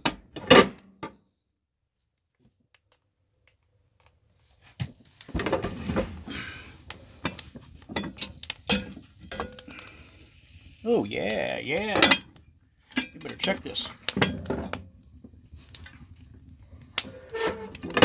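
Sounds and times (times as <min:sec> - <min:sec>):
metal squeak: 0:05.9 - 0:06.9, 0:17.1 - 0:17.8.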